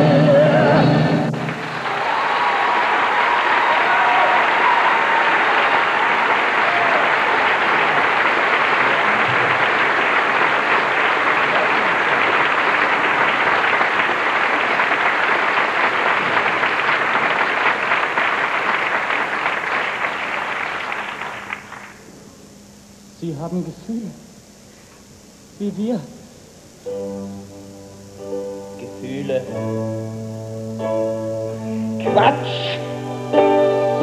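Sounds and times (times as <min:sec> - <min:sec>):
audience applauding: 0:01.3 - 0:22.1.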